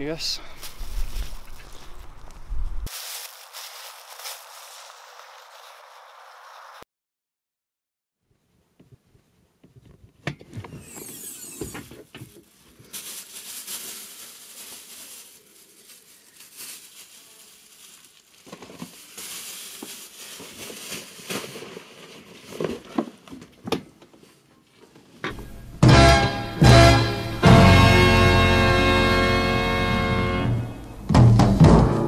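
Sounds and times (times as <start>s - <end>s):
plastic bags crinkling: 0.6s - 6.3s, 10.8s - 23.6s.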